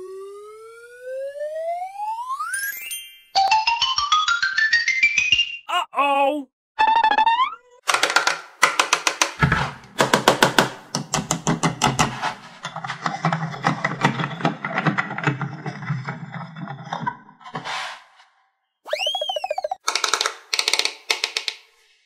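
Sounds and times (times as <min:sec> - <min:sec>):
plastic clicking and knocking: 0:07.9 - 0:15.8, 0:19.8 - 0:21.7.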